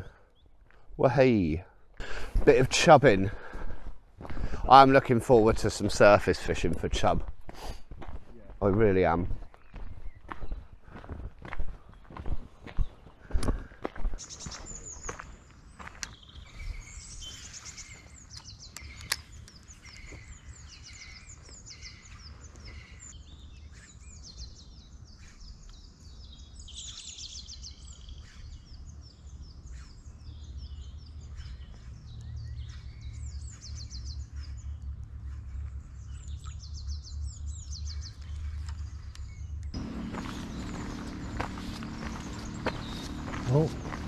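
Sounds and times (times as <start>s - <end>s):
songbirds singing: 0.0s - 7.2s, 8.6s - 11.0s, 11.7s - 44.0s
steady low rumble: 37.2s - 44.0s.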